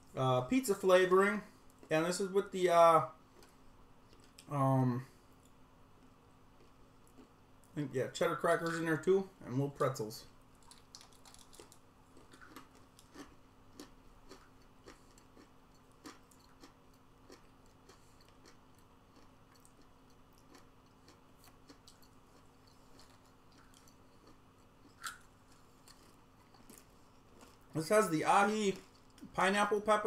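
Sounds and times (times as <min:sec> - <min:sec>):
low steady hum: 0:00.0 - 0:30.0
crunching and chewing: 0:03.3 - 0:04.5, 0:05.4 - 0:07.8, 0:10.5 - 0:27.8, 0:28.4 - 0:29.3.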